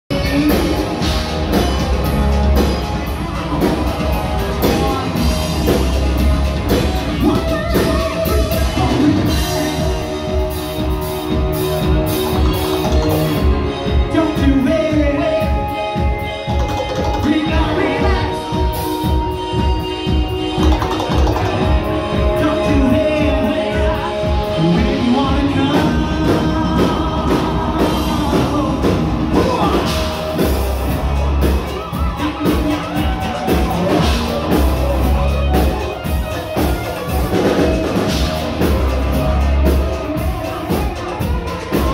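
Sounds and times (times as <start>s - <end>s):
drum kit: 0.1s - 41.9s
electric guitar: 0.1s - 41.9s
live rock band playing: 0.1s - 41.9s
singer on microphone: 0.1s - 41.9s.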